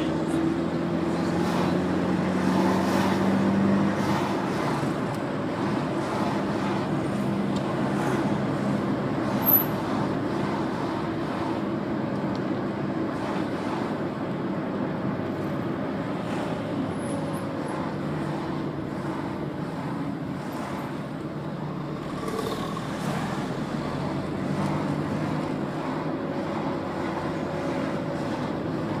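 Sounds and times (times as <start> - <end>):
car engine and tyre noise: 0.0 - 29.0.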